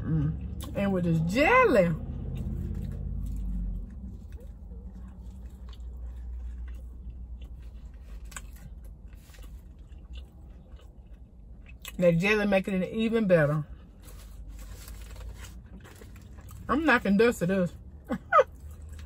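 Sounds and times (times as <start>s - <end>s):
low hum: 0.0s - 11.9s
person chewing food: 2.2s - 12.0s, 13.7s - 16.6s, 18.4s - 19.0s.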